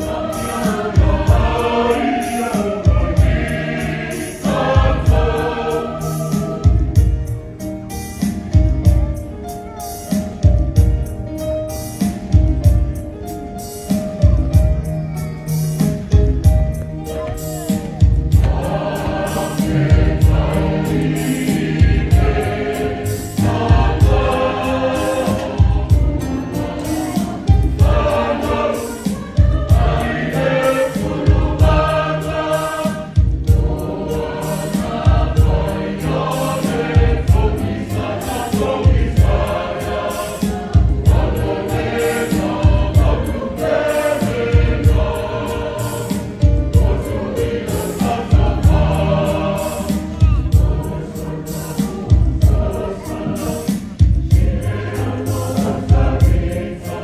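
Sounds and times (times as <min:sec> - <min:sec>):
church choir singing: 0:00.0 - 0:09.2, 0:17.3 - 0:57.0
low pulsing beat: 0:16.2 - 0:22.8.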